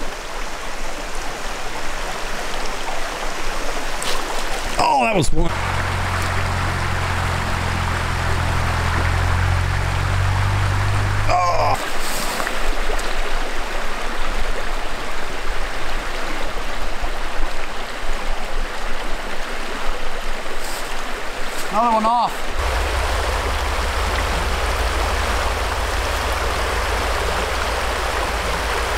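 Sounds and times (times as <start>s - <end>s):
water rushing over stones: 0.0s - 14.8s, 19.4s - 28.9s
low steady hum: 5.5s - 11.8s, 22.6s - 28.9s.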